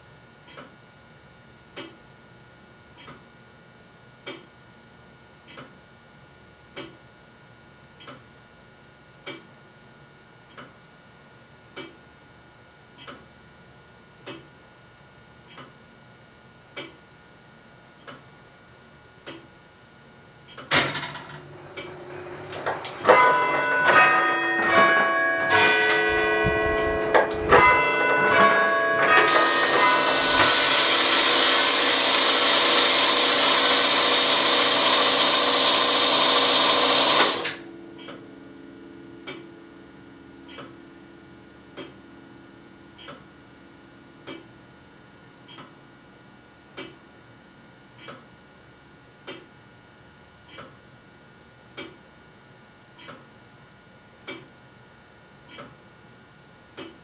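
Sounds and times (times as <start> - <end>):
tower clock mechanism whirring: 20.4 - 48.3
clock ticking: 44.2 - 44.5, 51.8 - 52.0.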